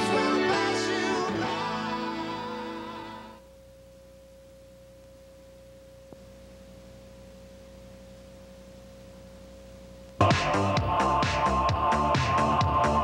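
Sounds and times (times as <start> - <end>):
faint steady pure tone: 0.0 - 10.2
music with a beat: 10.2 - 13.0.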